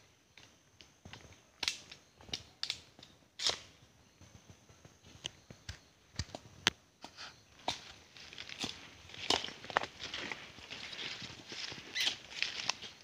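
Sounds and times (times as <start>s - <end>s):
footsteps in dry leaves: 7.6s - 13.0s.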